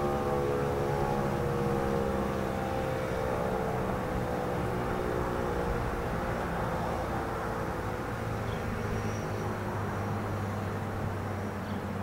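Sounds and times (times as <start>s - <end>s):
tornado siren tone: 0.0s - 6.2s
distant traffic: 0.0s - 12.0s.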